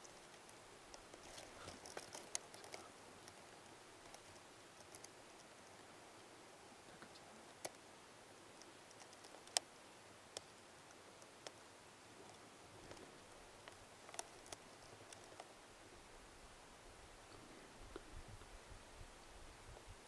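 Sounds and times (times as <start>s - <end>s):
faint rustling: 0.0s - 7.8s.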